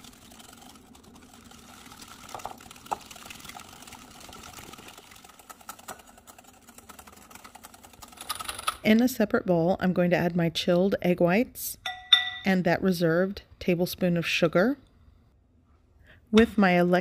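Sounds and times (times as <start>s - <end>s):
wet swishing of mixture: 0.0s - 8.2s.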